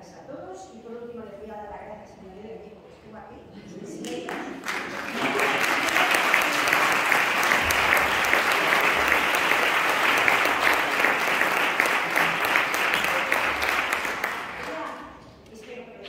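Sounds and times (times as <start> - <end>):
audience applauding: 4.0 - 15.0.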